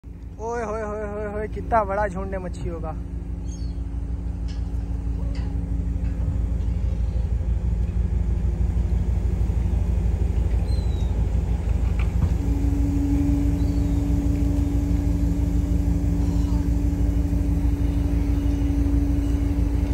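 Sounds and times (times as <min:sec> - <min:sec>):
engine rumbling: 0:00.0 - 0:19.9
higher hum: 0:00.0 - 0:19.9.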